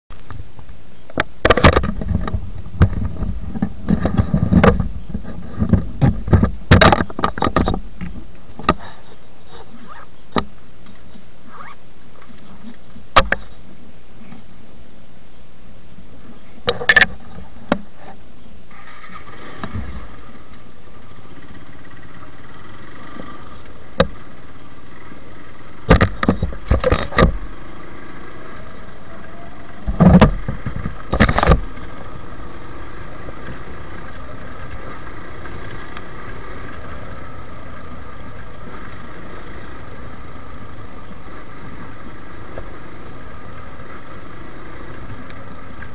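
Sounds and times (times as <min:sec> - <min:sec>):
motorcycle engine running: 0:01.4 - 0:13.6, 0:18.7 - 0:45.9
low rumble: 0:01.8 - 0:08.6.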